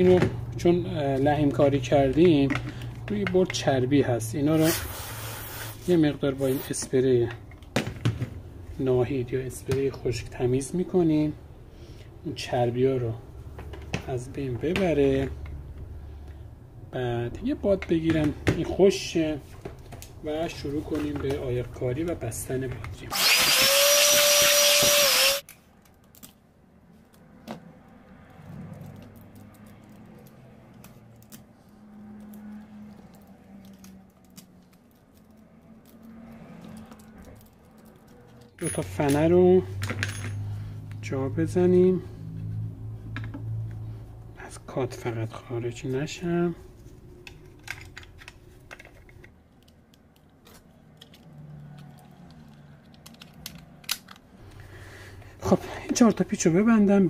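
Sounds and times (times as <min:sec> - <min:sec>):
electric air blower whine: 0:23.1 - 0:25.4.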